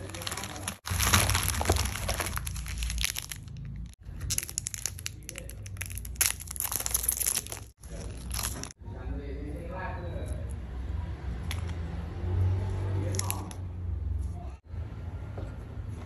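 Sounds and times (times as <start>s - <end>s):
wrapper tearing open: 0.0s - 8.7s
snack wrappers crinkling: 0.0s - 8.8s.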